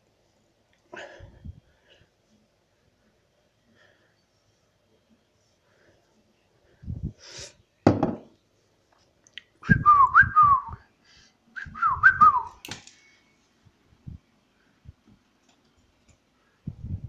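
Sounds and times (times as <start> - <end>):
person whistling: 9.6 - 10.8, 11.6 - 12.6.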